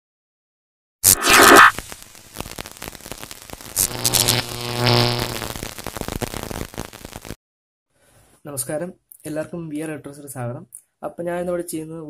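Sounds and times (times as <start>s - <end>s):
dense crackling static: 1.0s - 7.4s
loud noisy burst: 1.0s - 7.4s
low buzzing hum: 1.1s - 7.3s.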